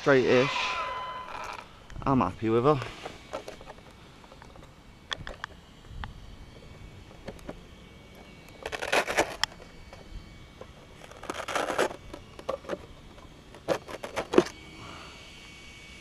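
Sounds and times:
plastic shell crackling and scraping: 2.7s - 14.6s.

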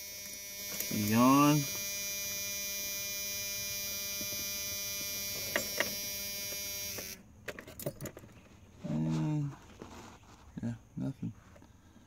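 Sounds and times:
steady electrical buzz: 0.0s - 7.3s.

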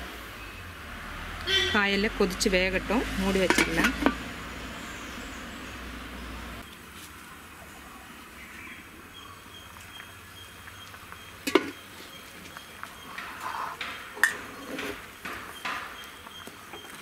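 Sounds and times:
pot bubbling at a boil: 0.0s - 17.0s
metal lid clanking: 3.4s - 4.2s
small metallic knocks: 13.1s - 16.0s.

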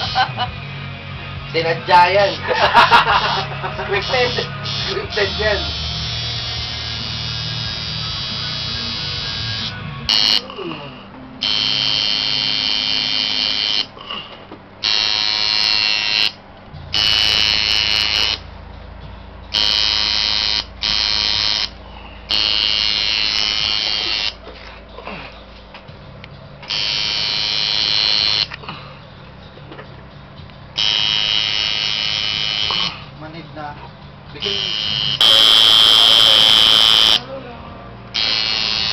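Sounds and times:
tattoo machine buzzing: 3.1s - 10.5s, 11.4s - 14.0s, 14.8s - 18.4s, 19.5s - 24.4s, 26.6s - 28.6s, 30.8s - 33.0s, 34.4s - 37.2s, 38.1s - 38.9s.

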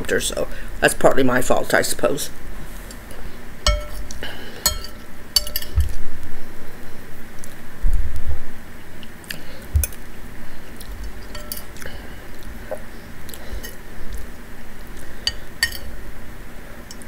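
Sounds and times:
spoon clinking on a bowl: 3.7s - 4.1s, 4.7s - 6.0s, 11.3s - 11.7s, 15.3s - 15.9s.

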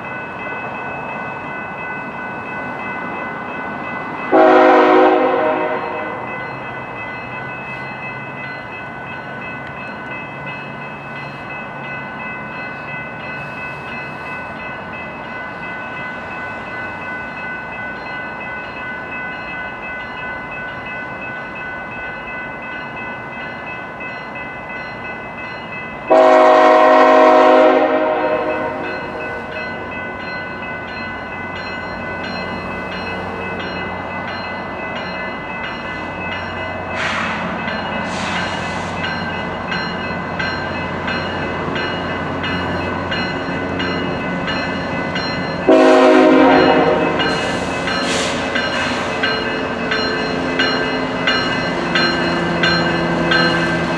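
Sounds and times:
diesel locomotive engines: 0.0s - 53.9s
train air horn blasts: 4.3s - 6.2s, 26.1s - 28.9s, 45.7s - 48.4s.

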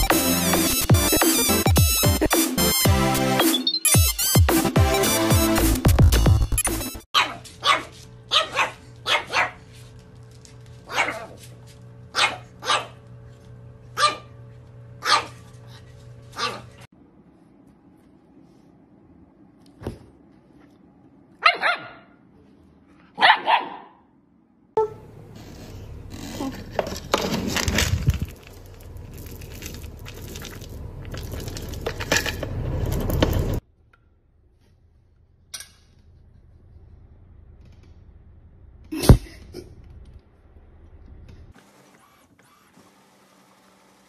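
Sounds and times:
dog barking: 7.2s - 9.6s, 10.9s - 11.4s, 12.1s - 13.0s, 14.0s - 14.3s, 15.0s - 15.4s, 16.4s - 16.7s, 21.4s - 22.2s, 23.1s - 24.1s.

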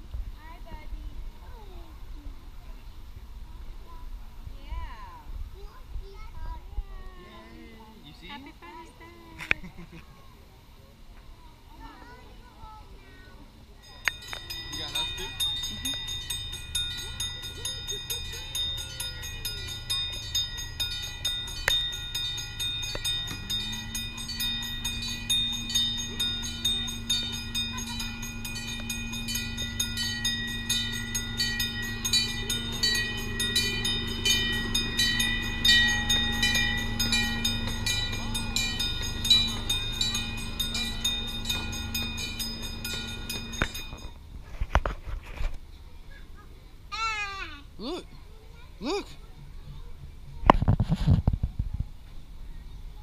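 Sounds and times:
steady low hum: 0.0s - 45.3s
crossing bell dinging: 13.8s - 44.3s
train rumbling: 13.8s - 44.6s.

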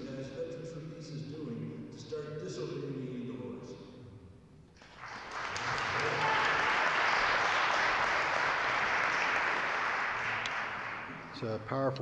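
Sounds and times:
audience applauding: 4.8s - 11.5s.

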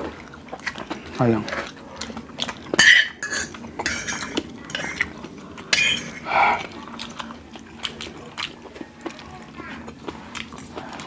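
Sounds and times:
cutlery scraping on a plate: 2.8s - 5.1s, 5.7s - 6.3s.

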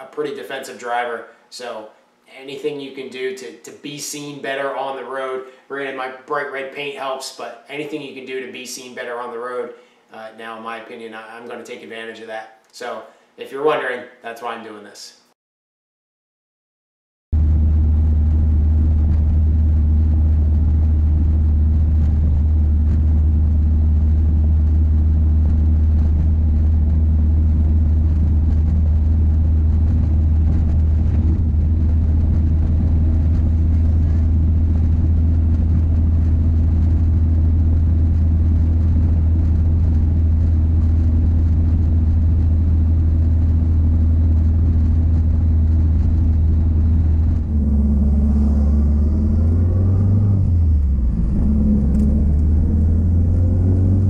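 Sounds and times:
car engine droning: 17.4s - 54.0s
road noise: 43.4s - 54.0s.

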